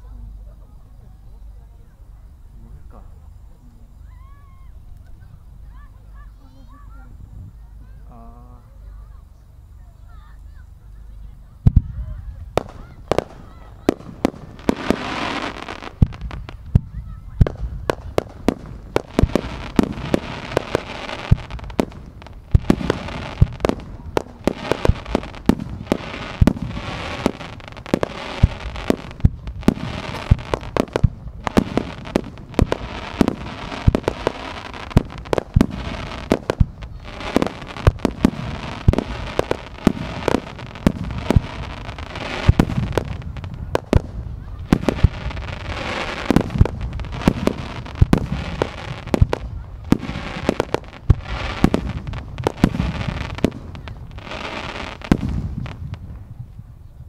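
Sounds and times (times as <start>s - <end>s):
fireworks bangs: 11.6s - 56.8s.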